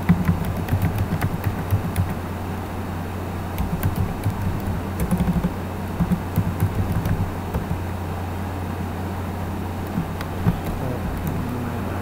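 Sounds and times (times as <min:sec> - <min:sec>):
keyboard typing clicks: 0:00.0 - 0:02.2, 0:03.6 - 0:07.8, 0:09.8 - 0:11.5
steady low hum: 0:00.0 - 0:12.0.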